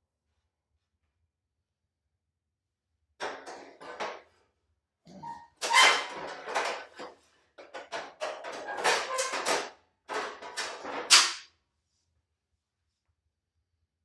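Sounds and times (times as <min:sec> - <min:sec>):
metal panels scraping and knocking: 0:03.2 - 0:04.3, 0:05.6 - 0:11.4.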